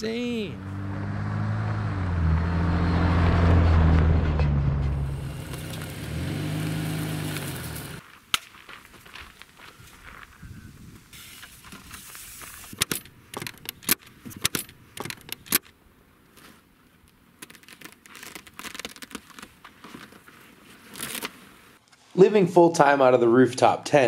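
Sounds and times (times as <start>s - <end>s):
metal latch clips clicking: 12.8s - 15.7s.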